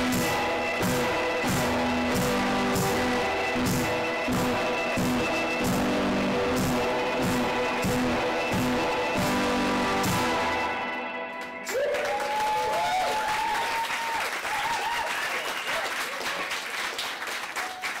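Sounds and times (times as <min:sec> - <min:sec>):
audience applause: 0:11.3 - 0:18.0
person whooping: 0:11.7 - 0:15.8.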